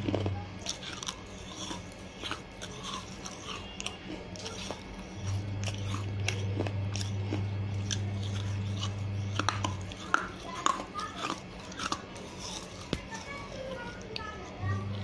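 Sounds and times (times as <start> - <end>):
clay pot pieces crunching: 0.0 - 13.3
low hum: 4.8 - 10.2.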